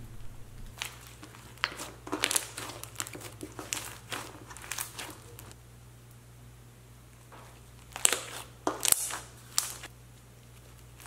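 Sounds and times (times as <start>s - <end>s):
slime crackling and crunching: 0.5s - 5.6s, 7.3s - 9.9s.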